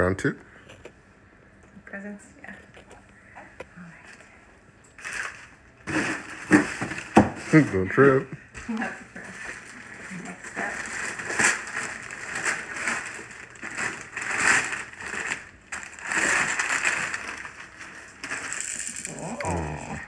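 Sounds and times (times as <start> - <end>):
wrapping paper rustling and tearing: 5.0 - 8.0, 9.2 - 20.0.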